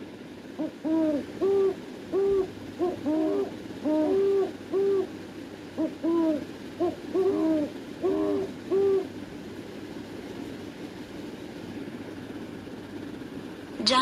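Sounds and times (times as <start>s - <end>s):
owl hooting: 0.0s - 9.2s.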